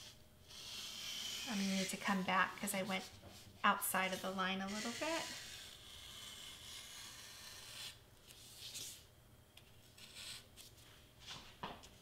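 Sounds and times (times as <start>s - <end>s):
craft knife scratching board: 0.0s - 8.0s.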